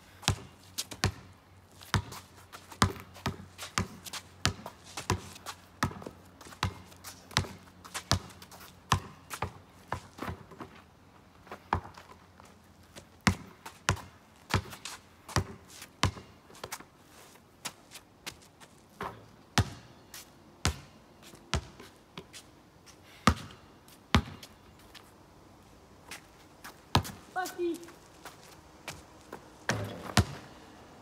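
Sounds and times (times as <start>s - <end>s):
basketball bouncing on pavement: 0.2s - 10.8s, 11.5s - 12.2s, 13.0s - 16.9s, 19.0s - 19.9s, 20.6s - 22.4s, 23.2s - 24.5s, 26.1s - 30.6s.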